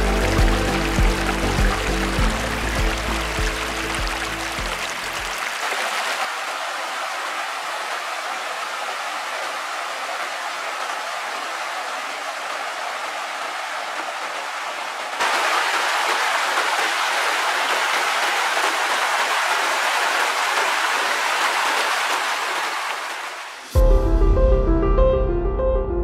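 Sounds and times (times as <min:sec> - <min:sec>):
water rushing down rocky cascade: 0:00.0 - 0:23.8.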